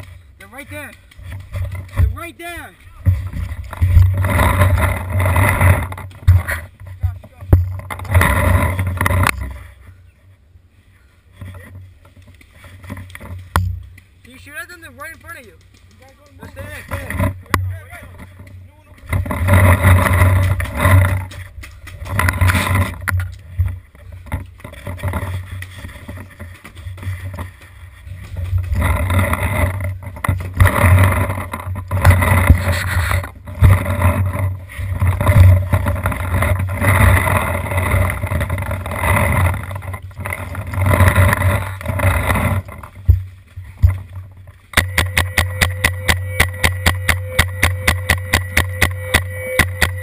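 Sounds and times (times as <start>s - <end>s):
rumbling wind on microphone: 3.0s - 9.7s, 19.0s - 50.0s
sharp knocks: 44.8s - 50.0s.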